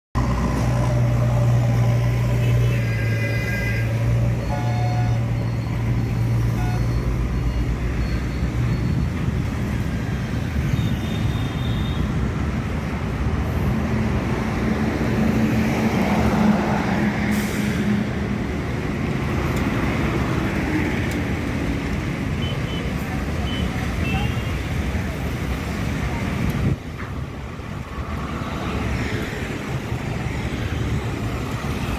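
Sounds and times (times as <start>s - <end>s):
cars and motorbikes passing: 0.2s - 31.9s
short high beeps: 4.3s - 9.3s.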